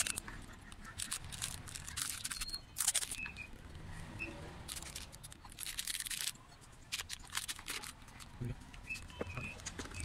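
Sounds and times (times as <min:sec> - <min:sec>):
wrappers crinkling and rustling: 0:01.0 - 0:03.2, 0:04.7 - 0:08.3.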